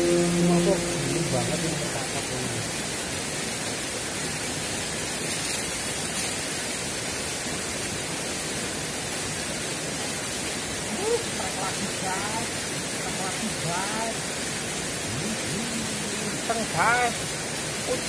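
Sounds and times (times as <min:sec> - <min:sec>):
flowing river water: 0:00.0 - 0:18.0.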